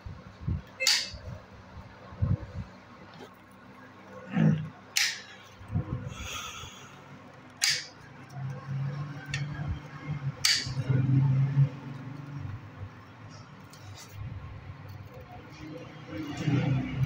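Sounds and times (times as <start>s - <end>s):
low hum: 0.0s - 17.0s
metallic clicks and knocks: 7.6s - 8.0s, 10.4s - 10.9s
metal scraping: 13.3s - 17.0s.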